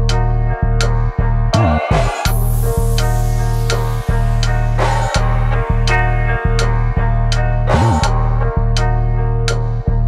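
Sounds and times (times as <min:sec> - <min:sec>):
bass line: 0:00.0 - 0:10.0
sharp percussion strikes: 0:01.6 - 0:08.4.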